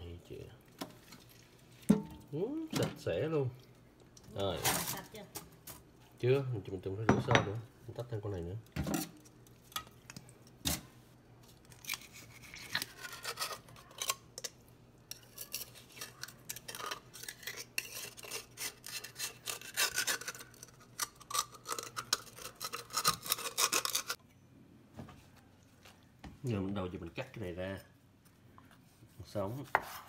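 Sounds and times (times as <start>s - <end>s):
knife scraping shell: 11.8s - 24.2s.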